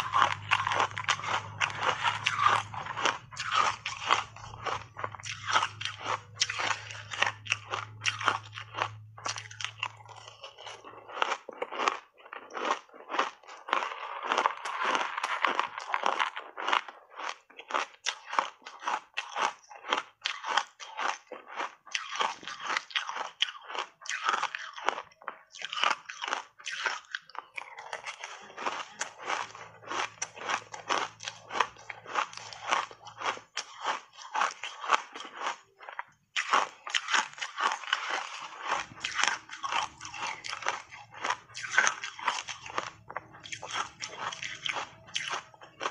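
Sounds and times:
ice chunks crunching when chewed: 0.0s - 45.9s.

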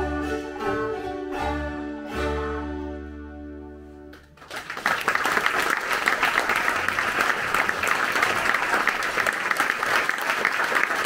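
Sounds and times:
audience applause: 4.4s - 11.0s.

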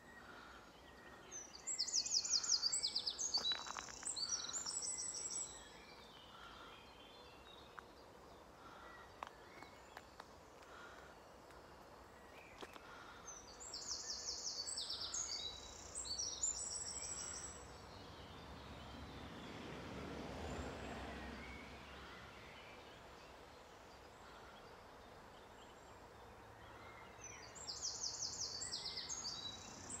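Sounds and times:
songbird singing trills: 0.0s - 10.2s, 13.2s - 19.5s, 24.7s - 30.0s.

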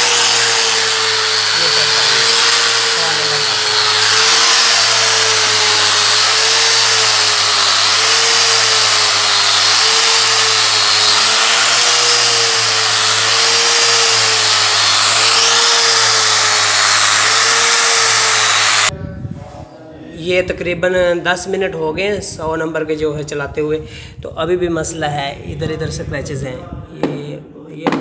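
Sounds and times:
angle grinder polishing stone: 0.0s - 18.9s.

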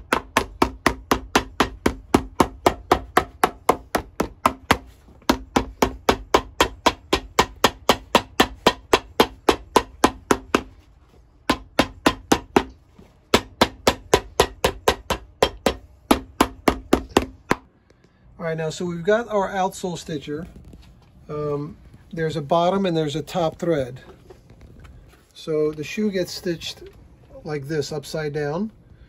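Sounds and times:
hammer beating leather: 0.0s - 17.7s.

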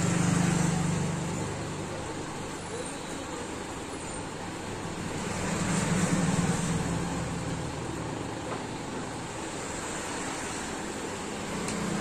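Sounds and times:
single-cylinder engine running: 0.0s - 2.7s.

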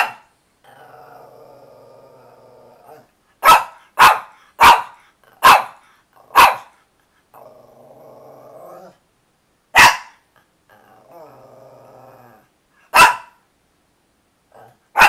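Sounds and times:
dog growling low: 0.6s - 3.1s, 7.3s - 9.0s, 10.7s - 12.5s, 14.5s - 14.9s
dog barking sharply: 3.4s - 5.8s, 6.4s - 6.7s, 9.8s - 10.2s, 12.9s - 13.4s.

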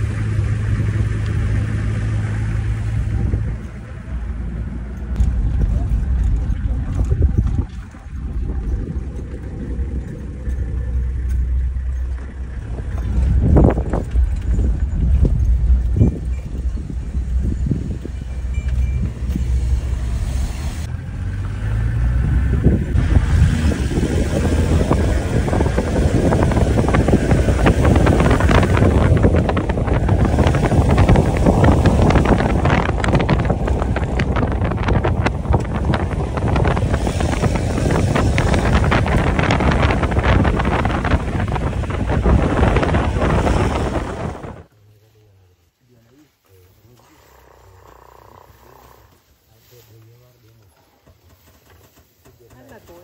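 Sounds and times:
moving vehicle rumble: 0.0s - 53.0s
wind buffeting microphone: 5.1s - 44.7s.

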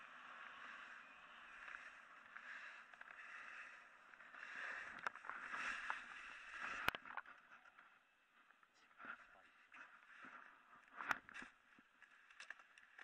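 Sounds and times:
snowboard scraping over snow: 0.2s - 6.9s.

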